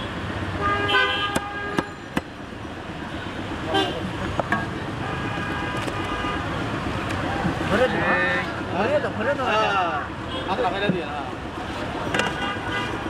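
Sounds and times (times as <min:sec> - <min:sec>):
vehicle horns tooting: 0:00.0 - 0:02.0, 0:03.1 - 0:04.2, 0:04.9 - 0:06.6, 0:12.1 - 0:13.0
sharp knocks: 0:01.3 - 0:02.4.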